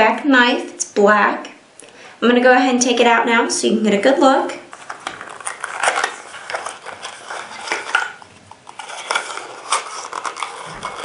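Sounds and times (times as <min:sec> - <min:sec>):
cardboard box scraping and rustling: 0:05.2 - 0:11.0.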